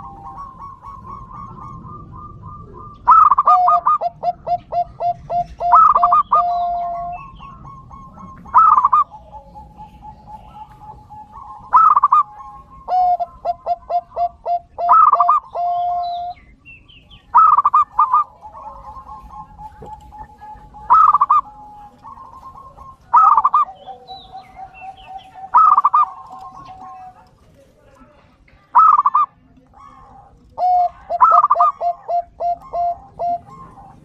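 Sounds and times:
dove cooing: 0.0 - 34.0.

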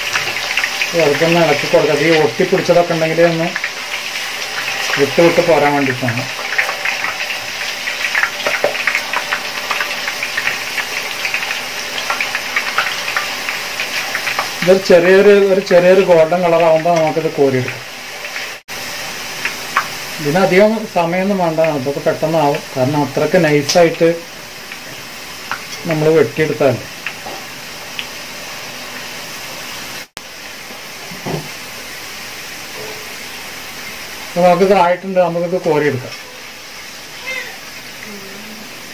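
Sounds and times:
potatoes sizzling in hot oil: 0.0 - 38.9.

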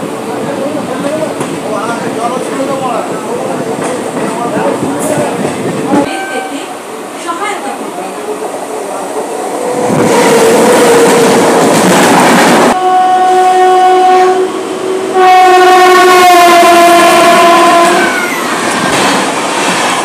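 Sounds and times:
train rumble and clatter: 0.0 - 12.8, 16.2 - 20.0
train horn blasts: 6.0 - 6.7, 12.8 - 18.2.

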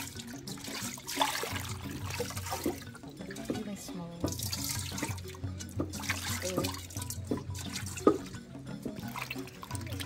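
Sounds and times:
background music: 0.0 - 10.0
water splashing in metal bowl: 0.0 - 10.0.

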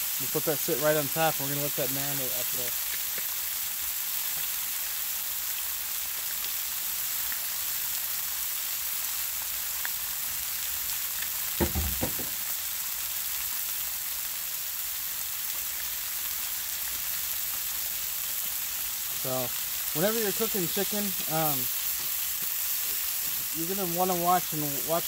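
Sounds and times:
food sizzling on a griddle: 0.0 - 25.0
brief knocks: 11.6 - 12.4.

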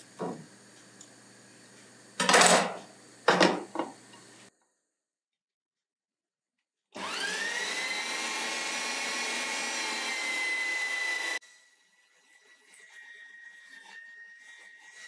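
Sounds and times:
electric meat grinder whine: 6.9 - 15.0.

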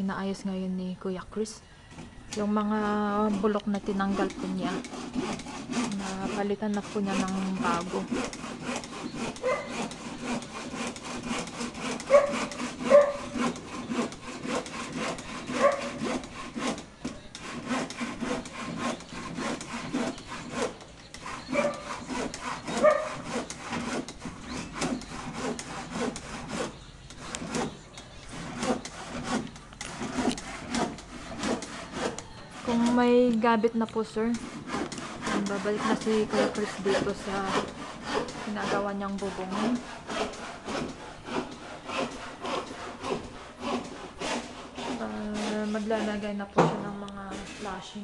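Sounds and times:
handsaw cutting wood: 1.9 - 48.0.

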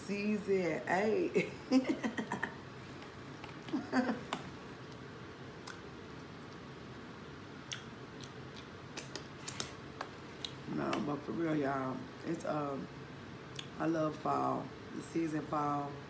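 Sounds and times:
wet mouth clicks and smacks: 5.6 - 6.6, 7.6 - 10.6
person chewing: 7.6 - 9.7.

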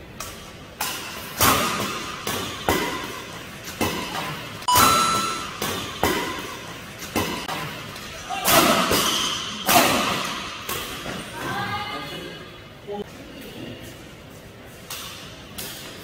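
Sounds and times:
rackets hitting shuttlecock: 0.2 - 7.6.

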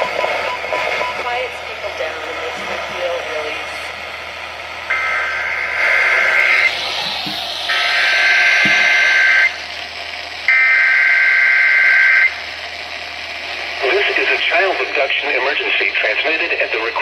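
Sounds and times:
buzzy two-tone data bursts: 4.9 - 9.6.

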